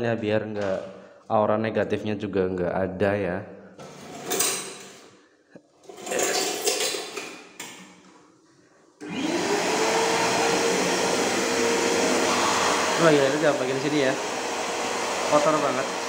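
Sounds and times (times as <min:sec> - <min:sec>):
vacuum cleaner motor whining: 0:09.0 - 0:16.0.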